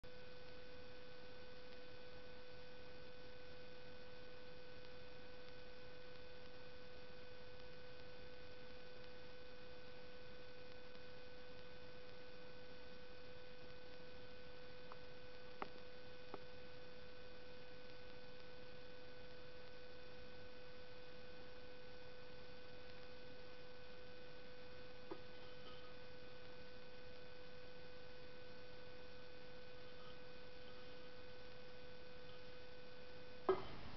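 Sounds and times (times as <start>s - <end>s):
electrical hum and whine: 0.0s - 33.9s
low hiss: 0.0s - 33.9s
faint clicks: 14.8s - 16.5s, 22.8s - 23.2s.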